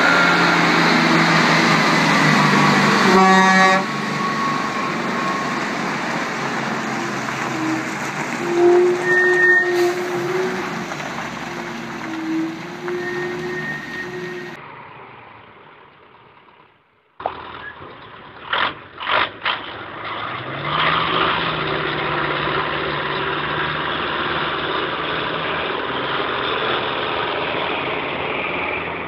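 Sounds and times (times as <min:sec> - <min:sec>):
diesel truck engine revving: 0:00.0 - 0:15.3, 0:17.2 - 0:29.0
engine blasts: 0:00.0 - 0:15.8.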